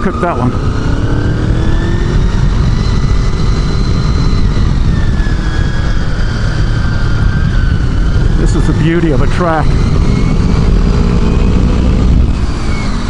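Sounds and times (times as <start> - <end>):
motorcycle engine revving: 0.0 - 13.0
wind rush on microphone: 0.0 - 13.0.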